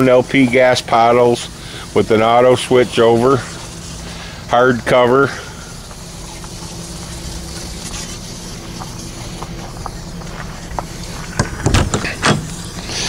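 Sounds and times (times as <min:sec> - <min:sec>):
low mechanical hum: 0:00.0 - 0:13.0
door knocks and clatters: 0:11.4 - 0:12.5.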